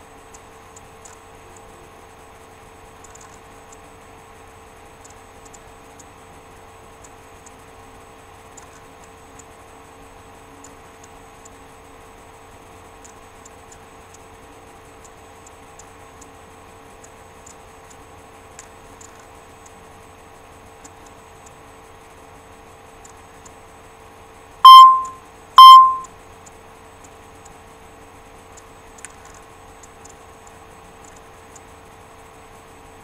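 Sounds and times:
electrical hum: 0:00.0 - 0:33.0
faint small ticks: 0:00.2 - 0:01.8, 0:02.9 - 0:03.9, 0:05.0 - 0:07.7, 0:08.5 - 0:09.6, 0:10.6 - 0:11.6, 0:13.0 - 0:14.3, 0:14.9 - 0:16.4, 0:17.0 - 0:19.8, 0:20.7 - 0:21.6, 0:23.0 - 0:23.6, 0:25.8 - 0:27.6, 0:28.3 - 0:31.9.

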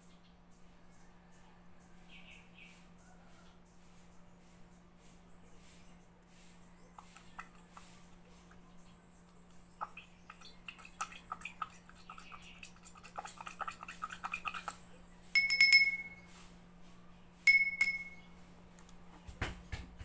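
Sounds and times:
glass cup ringing clinks: 0:15.3 - 0:16.3, 0:17.5 - 0:18.3
glass cup clicks and scrapes: 0:15.4 - 0:16.3, 0:17.5 - 0:18.2.

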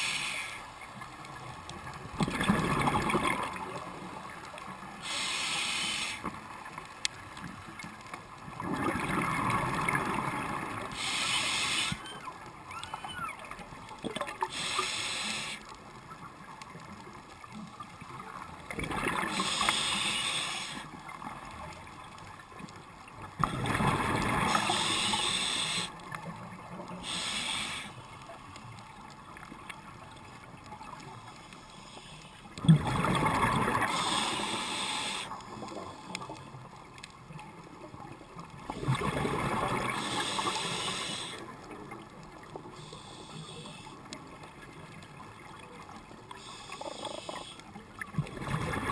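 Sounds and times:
diver breathing through regulator: 0:00.0 - 0:00.7, 0:05.0 - 0:06.3, 0:10.9 - 0:12.0, 0:14.5 - 0:15.6, 0:19.3 - 0:20.9, 0:24.5 - 0:26.0, 0:27.0 - 0:28.1, 0:33.8 - 0:36.2, 0:39.9 - 0:41.5, 0:42.8 - 0:44.1, 0:46.4 - 0:47.6
exhaled bubbles gurgling: 0:01.3 - 0:05.0, 0:08.4 - 0:15.5, 0:18.1 - 0:21.7, 0:23.2 - 0:27.8, 0:32.6 - 0:43.0, 0:44.0 - 0:48.9.

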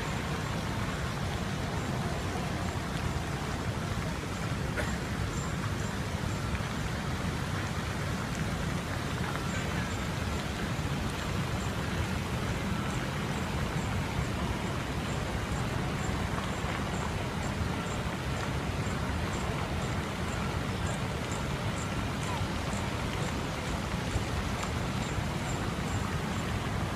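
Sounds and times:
fountain water spraying and splashing: 0:00.0 - 0:26.9.

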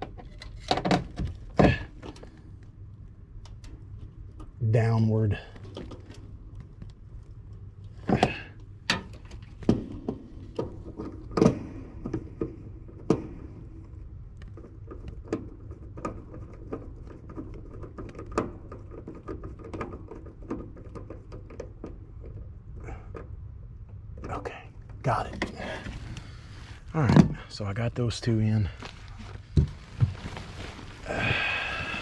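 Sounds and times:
steady low hum: 0:21.1 - 0:32.0.

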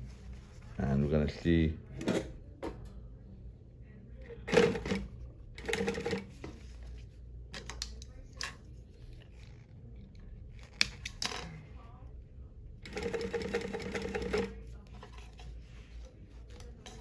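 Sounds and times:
faint low hum: 0:00.0 - 0:17.0
sewing machine stitching: 0:12.8 - 0:14.6.

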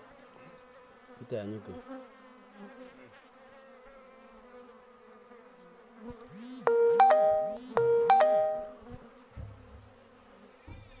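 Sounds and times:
three-note electronic chime: 0:06.7 - 0:08.8.

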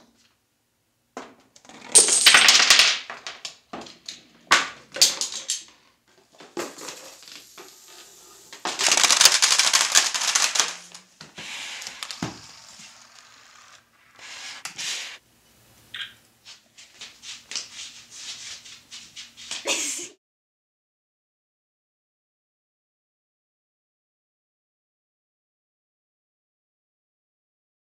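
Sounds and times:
dominoes toppling on hard floor: 0:01.7 - 0:05.8, 0:06.4 - 0:15.2.

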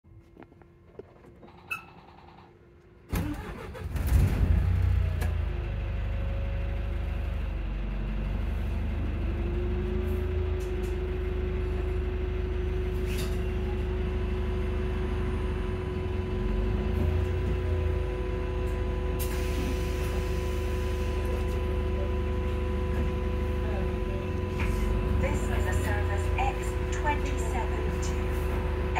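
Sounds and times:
diesel engine starting and idling: 0:00.4 - 0:28.9.

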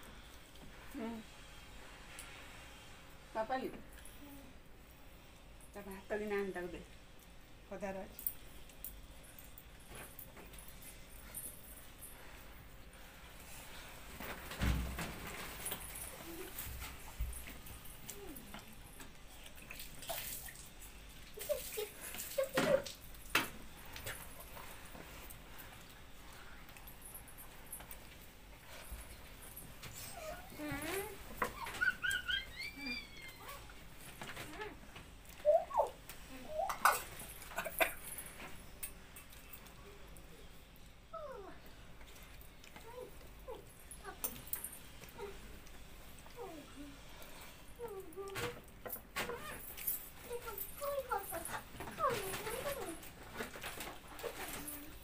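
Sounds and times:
young animal whimpering: 0:30.0 - 0:33.7.

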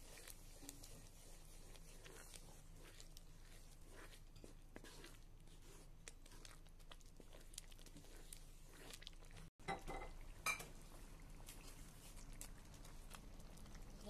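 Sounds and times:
wooden spatula scraping wok: 0:00.0 - 0:06.5.

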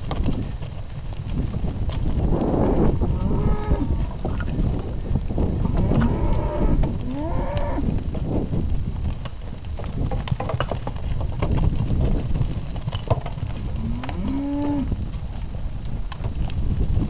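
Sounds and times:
calves mooing: 0:02.7 - 0:04.2, 0:05.6 - 0:07.9, 0:13.8 - 0:14.9.

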